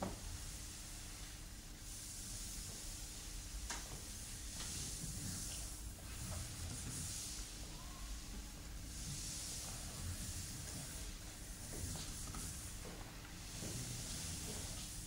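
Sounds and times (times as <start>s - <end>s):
soft hissing noise: 0.0s - 15.0s.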